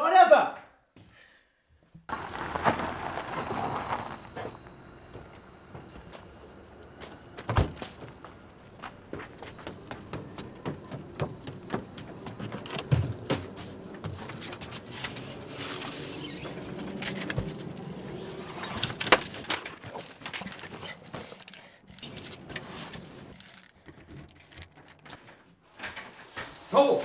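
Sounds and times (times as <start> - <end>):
footsteps on wooden stairs: 2.6 - 15.8
keys jangling: 16.5 - 25.4.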